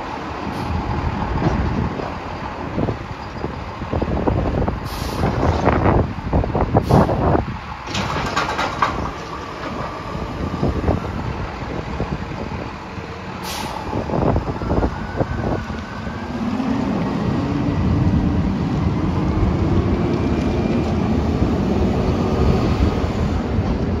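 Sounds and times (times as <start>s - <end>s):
truck diesel engine: 0.0s - 24.0s
air brake hiss: 4.8s - 5.4s, 6.8s - 7.3s, 13.4s - 14.0s.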